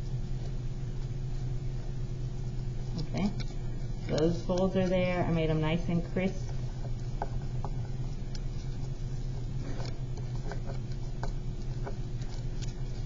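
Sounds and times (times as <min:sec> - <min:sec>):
paper crinkling and tapping: 0:02.8 - 0:13.0.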